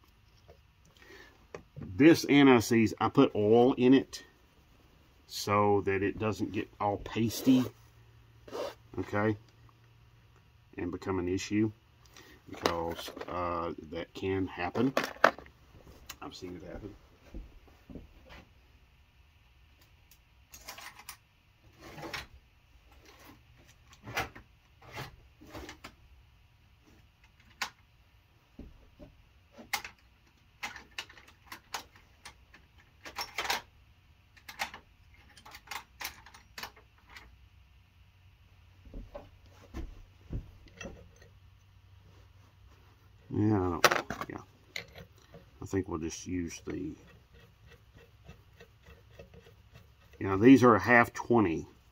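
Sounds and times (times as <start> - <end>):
metallic clicks of small steel parts: 34.3 - 37.3.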